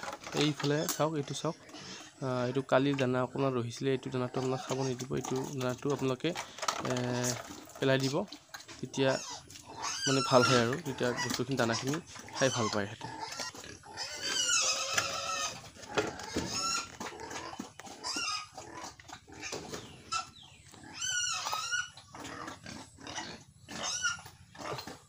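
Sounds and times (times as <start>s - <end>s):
pigs squealing: 0.0s - 25.0s.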